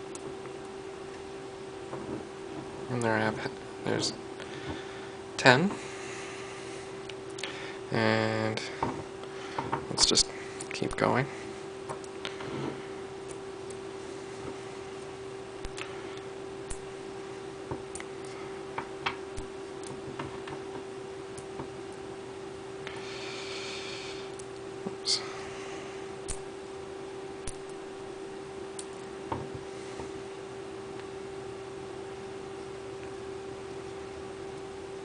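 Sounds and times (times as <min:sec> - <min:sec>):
steady hum: 0:00.0 - 0:35.0.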